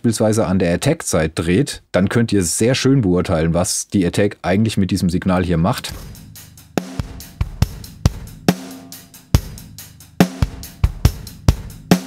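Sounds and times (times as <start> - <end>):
compressed rock drum loop: 5.8 - 12.0.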